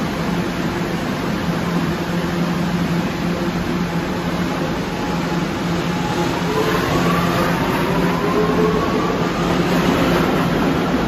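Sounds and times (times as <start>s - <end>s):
subway train humming: 0.0s - 11.0s.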